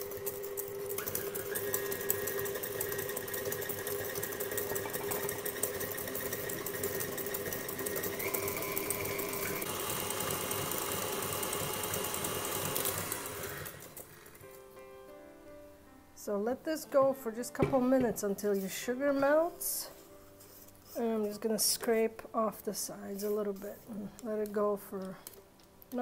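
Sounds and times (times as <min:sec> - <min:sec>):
stand mixer motor whining: 0:00.0 - 0:14.4.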